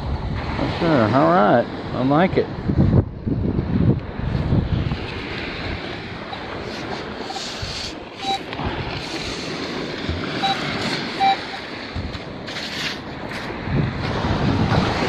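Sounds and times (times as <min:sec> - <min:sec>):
beach surf: 0:00.0 - 0:15.0
wind buffeting microphone: 0:00.0 - 0:15.0
sand scoop rasping in sand: 0:04.8 - 0:11.8, 0:12.4 - 0:15.0
metal detector beeps: 0:06.3 - 0:08.5, 0:10.4 - 0:11.7.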